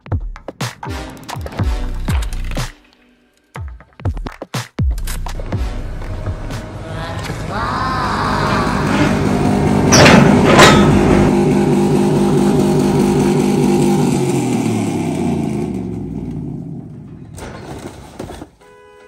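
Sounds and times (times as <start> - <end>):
engine running: 5.1 - 17.4
sharp loud hits: 8.8 - 14.6.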